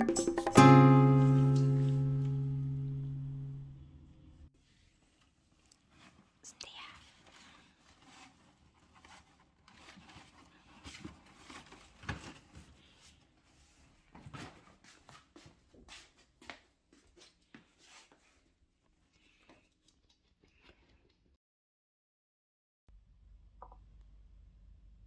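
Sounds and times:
cardboard box rustling: 0:07.7 - 0:12.8.

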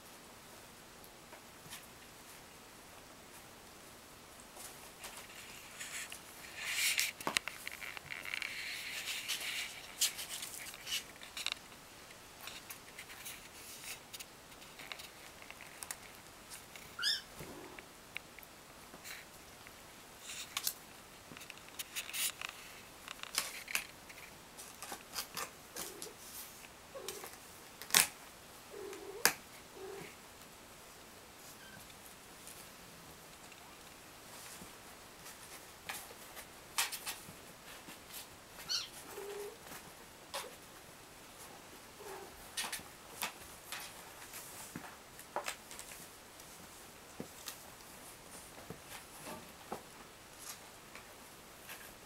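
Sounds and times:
kittens scratching on cardboard: 0:04.6 - 0:11.6.

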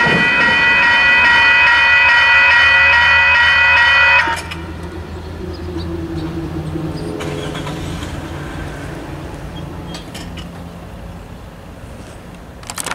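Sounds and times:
crossing gate motor hum: 0:00.0 - 0:12.8
low steady rumble: 0:04.4 - 0:09.6.

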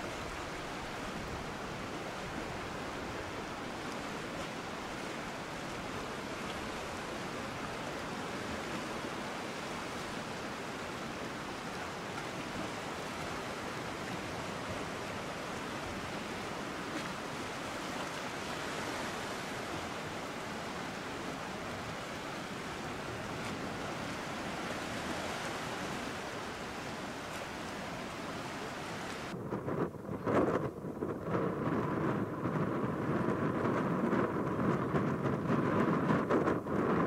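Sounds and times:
small waves washing among rocks: 0:00.0 - 0:29.4.

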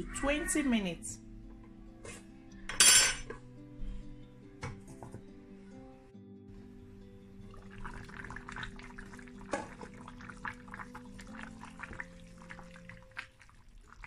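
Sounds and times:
soft background music: 0:00.0 - 0:14.0
soup bubbling in a pot: 0:06.7 - 0:14.0.

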